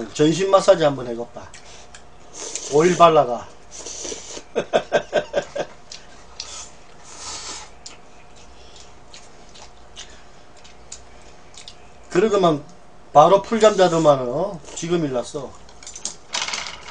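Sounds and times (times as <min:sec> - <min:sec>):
faint chewing: 0:05.6 - 0:12.8.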